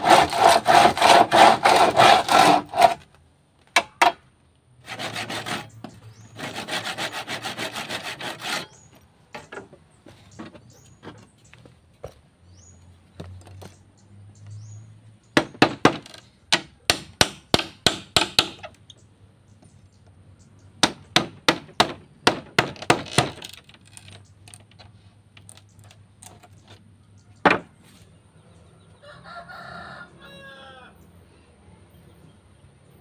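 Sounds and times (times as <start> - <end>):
blade chopping bamboo: 0.0 - 3.0
rooster crowing: 29.0 - 31.1.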